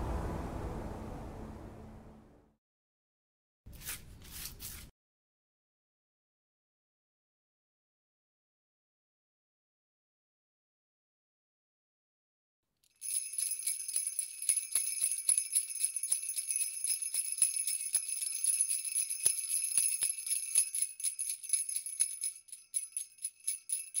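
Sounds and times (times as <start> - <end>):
jingle bells shaken: 12.9 - 24.0.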